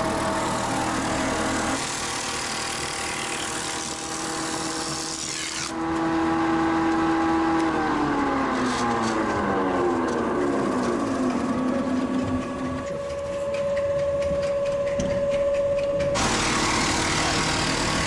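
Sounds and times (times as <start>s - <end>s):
cutter rasping through wood: 0.0s - 11.1s, 16.2s - 18.0s
electric motor humming: 0.0s - 18.0s.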